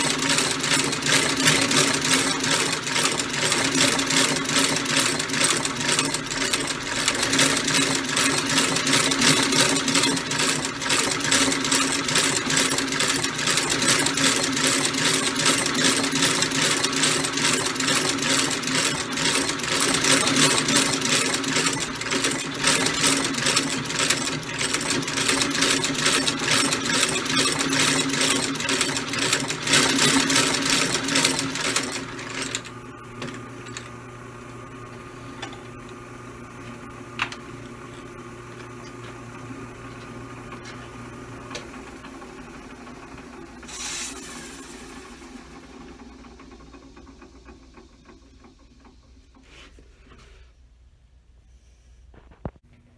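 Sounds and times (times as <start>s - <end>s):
stitching machine clattering: 0.0s - 33.9s.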